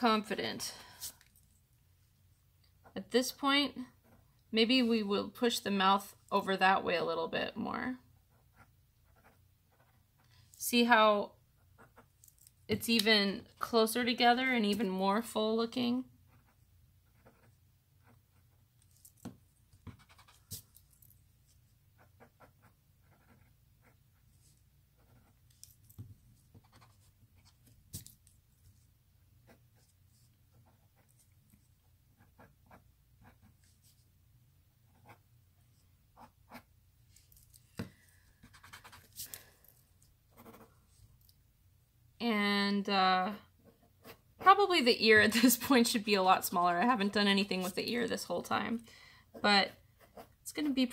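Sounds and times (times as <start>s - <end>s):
pencil scratching on paper: 8.2s - 10.3s, 11.6s - 12.4s, 16.2s - 34.1s, 34.9s - 35.3s, 36.1s - 36.7s, 38.4s - 39.3s, 40.3s - 41.0s, 43.3s - 44.6s, 49.3s - 50.9s.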